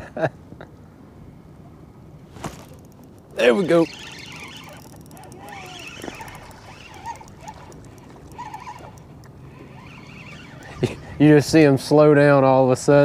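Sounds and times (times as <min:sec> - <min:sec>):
faint wavering tones: 0:02.5 - 0:11.7.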